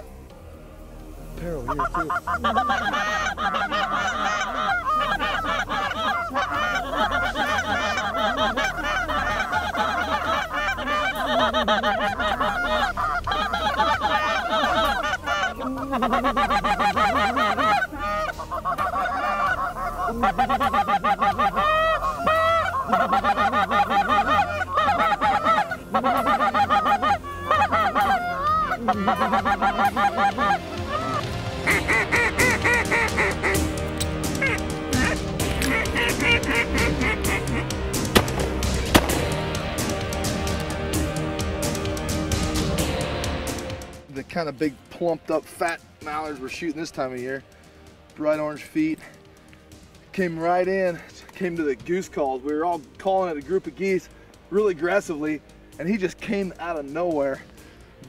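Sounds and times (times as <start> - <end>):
geese honking: 1.4 - 43.8.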